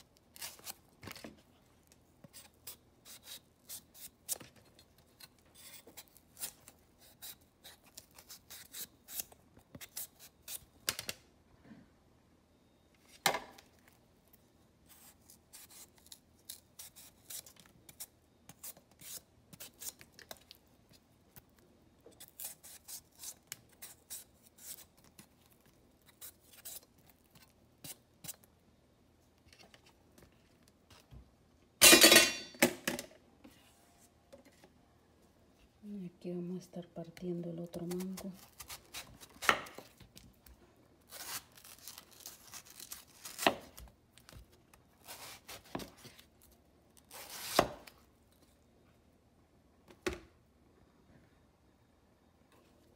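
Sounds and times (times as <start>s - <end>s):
knife cutting mango: 2.2s - 10.7s, 37.8s - 40.0s, 45.0s - 47.9s.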